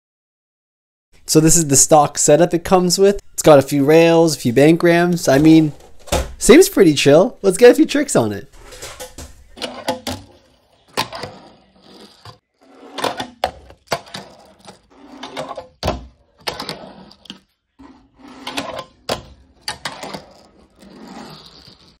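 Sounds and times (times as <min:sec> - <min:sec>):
small wheels rolling on ramps: 0:08.6 - 0:22.0.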